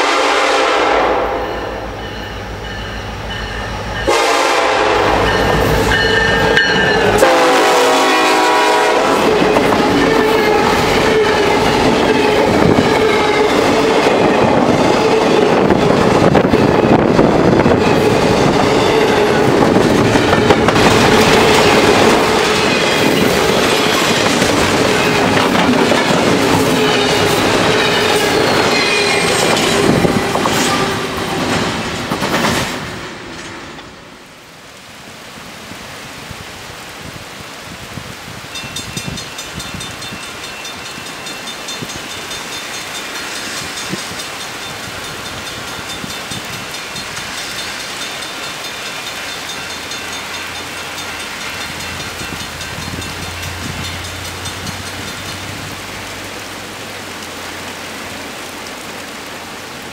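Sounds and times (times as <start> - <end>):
locomotive horn: 0.0 - 1.9, 4.0 - 15.8, 24.9 - 31.2
train whine: 0.0 - 34.6, 38.4 - 59.9
freight train wheels clattering: 8.4 - 33.9, 38.6 - 55.7.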